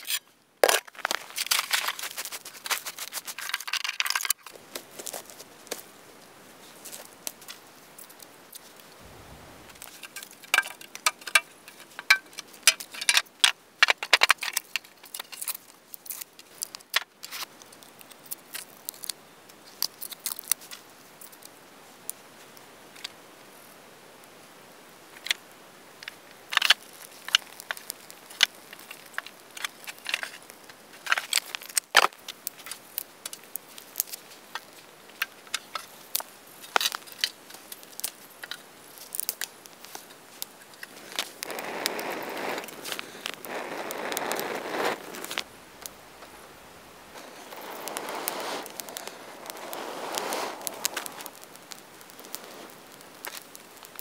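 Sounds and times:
sticks clattering on a steel tray: 9.9 - 13.2.

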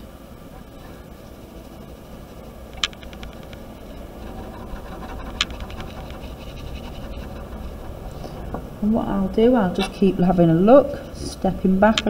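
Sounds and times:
low hum: 0.0 - 12.0
pen tick on paper: 2.8 - 3.6, 4.2 - 8.2
pen scratching on paper: 2.8 - 8.9.

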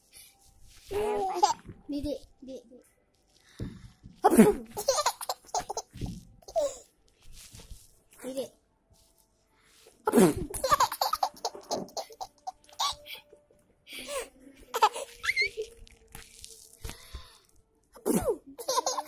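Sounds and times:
toddler laughing and squealing: 14.8 - 15.7.

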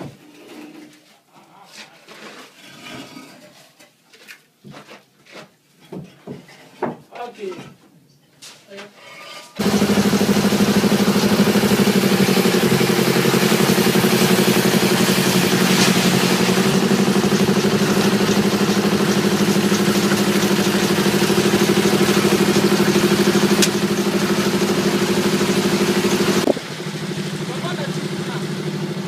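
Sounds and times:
engine running steadily: 9.6 - 29.0.

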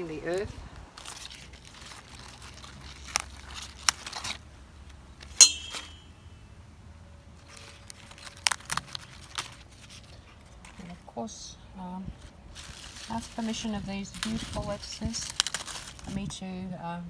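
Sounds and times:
lettuce leaves rustling: 0.0 - 6.0, 7.3 - 16.6
metallic bowl clink: 5.4 - 6.2.

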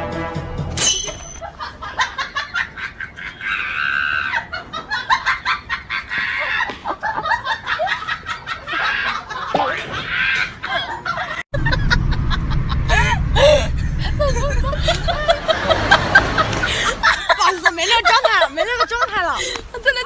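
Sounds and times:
music: 0.0 - 0.8.

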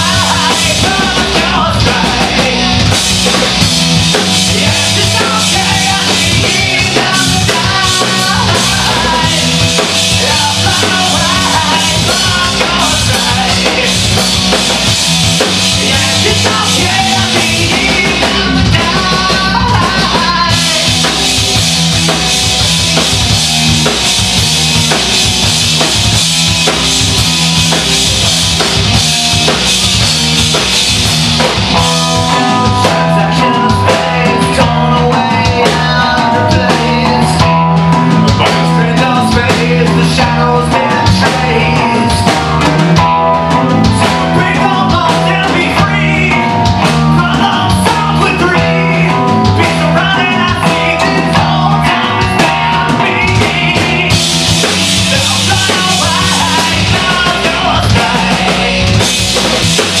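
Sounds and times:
person singing: 0.0 - 2.9, 4.4 - 14.3, 15.8 - 21.2, 31.8 - 59.2
live rock band playing: 0.0 - 60.0.

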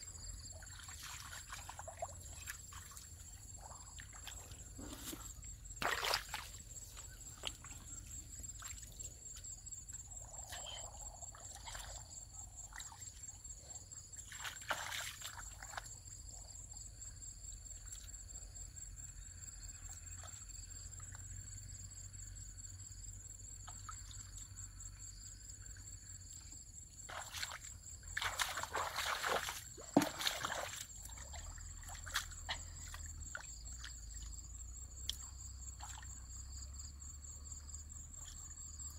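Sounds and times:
high insect trill: 0.0 - 38.9
hands sloshing in muddy water: 0.2 - 13.5, 14.1 - 16.0, 27.0 - 36.2.

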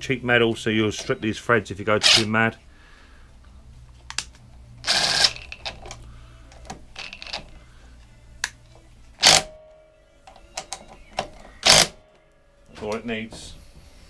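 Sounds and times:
impact driver bursts: 2.0 - 2.3, 4.8 - 5.6, 9.2 - 9.5, 11.6 - 12.0.

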